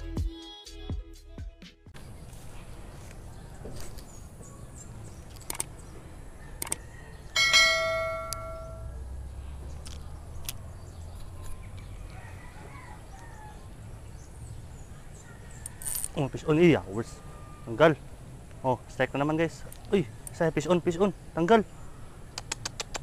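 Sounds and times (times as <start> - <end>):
short clicks: 5.3 - 5.7, 6.6 - 6.8, 22.3 - 23.0
bright bell-like chime: 7.4 - 9.0.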